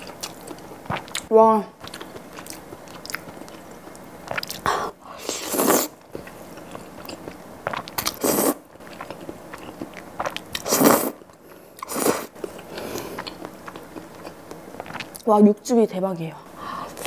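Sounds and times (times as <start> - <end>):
wet chewing: 0.0 - 15.3
slurping noodles: 4.4 - 6.0, 7.7 - 8.6, 10.2 - 11.2, 11.8 - 13.1.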